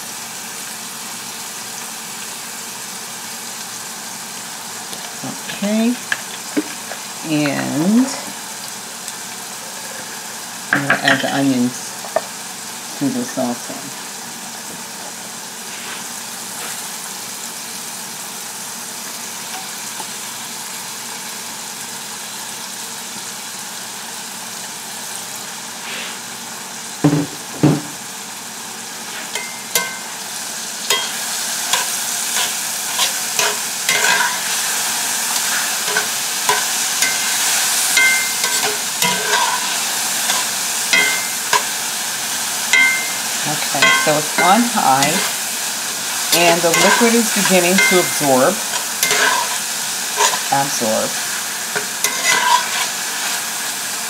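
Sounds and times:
mushrooms and onions sizzling: 0.0s - 54.0s
spatula scraping a pan: 30.9s - 41.8s, 42.7s - 53.6s.

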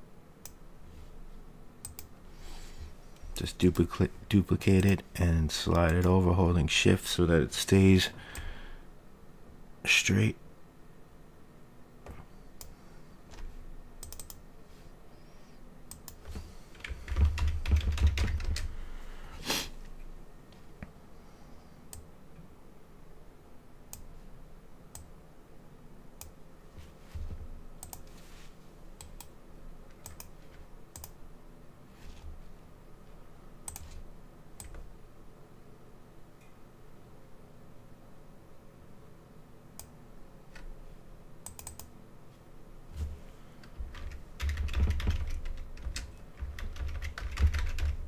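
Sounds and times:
computer keyboard typing: 14.0s - 14.4s, 15.9s - 18.7s, 41.4s - 41.9s, 43.9s - 48.0s.

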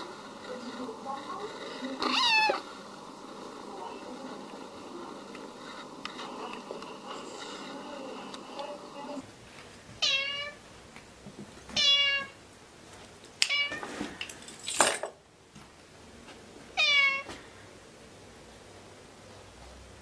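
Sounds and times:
cat meowing: 2.0s - 2.6s, 10.0s - 10.6s, 11.8s - 12.4s, 13.5s - 13.8s, 16.8s - 17.3s.

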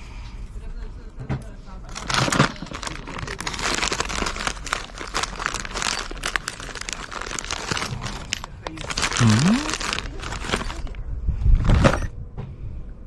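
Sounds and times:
crinkling and crackling packaging: 1.8s - 11.0s, 11.6s - 12.1s.

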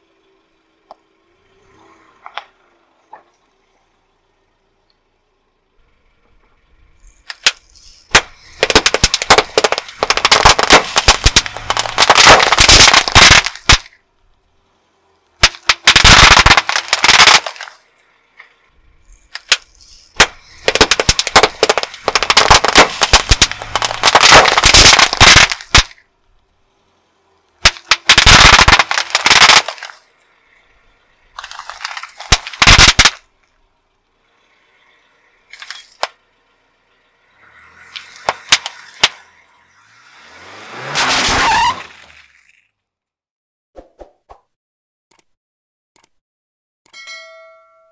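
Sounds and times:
firecrackers banging and crackling: 7.3s - 14.0s, 15.4s - 17.8s, 19.3s - 26.1s, 27.6s - 30.1s, 31.3s - 33.3s, 35.6s - 36.2s, 37.8s - 39.2s, 40.8s - 42.6s.

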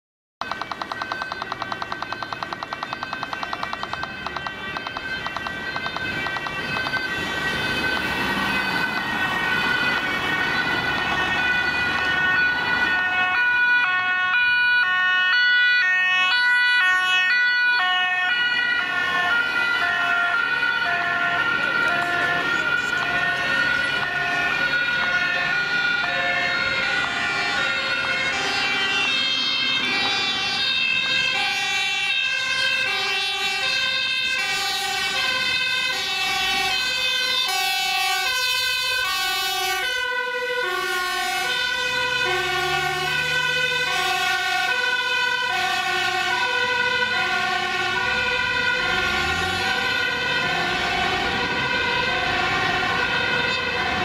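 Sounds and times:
two-tone sirens: 0.4s - 54.0s
diesel engine accelerating: 46.4s - 54.0s.

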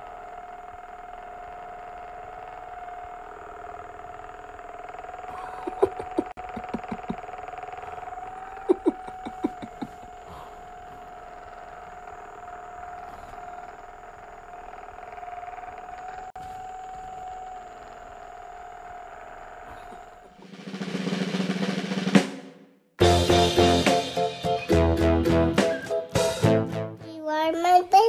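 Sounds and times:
electric motor humming: 0.0s - 20.8s.

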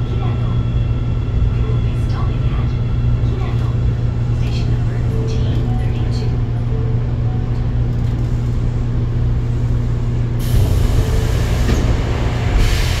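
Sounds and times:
subway car running drone: 0.0s - 13.0s.

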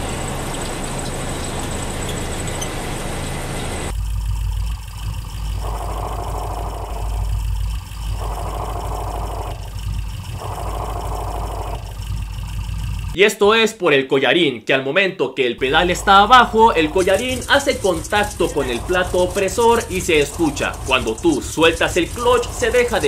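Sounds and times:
car engine idling: 0.0s - 13.2s, 15.6s - 23.0s
clutch release bearing noise: 15.6s - 23.0s.

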